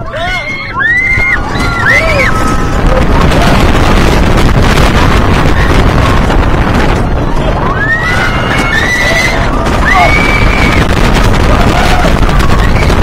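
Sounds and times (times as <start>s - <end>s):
coaster train rumbling on track: 0.0s - 13.0s
wind on microphone: 0.0s - 13.0s
riders screaming: 0.1s - 3.0s, 7.6s - 13.0s.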